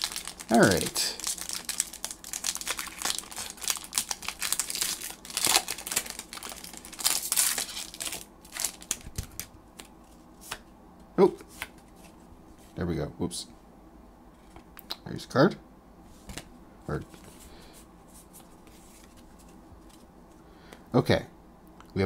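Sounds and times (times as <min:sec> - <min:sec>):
foil wrapper crinkling and tearing: 0:00.0 - 0:09.9.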